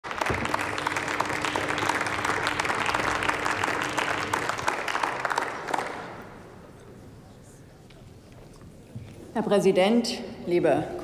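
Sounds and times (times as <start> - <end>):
people clapping: 0.0 - 6.7.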